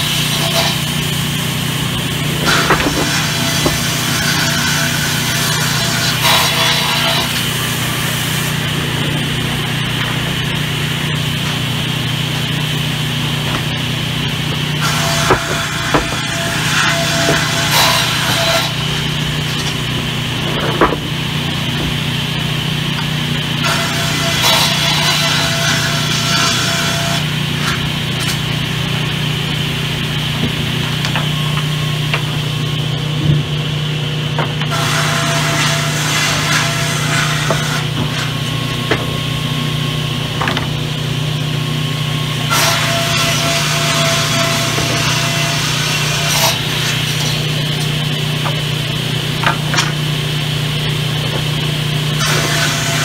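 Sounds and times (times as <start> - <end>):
plank being ripped by saw: 0.0 - 32.5, 34.4 - 41.1, 42.4 - 53.0
saw machine humming: 0.0 - 53.0
sharp knocks: 2.4 - 5.0, 14.8 - 18.8.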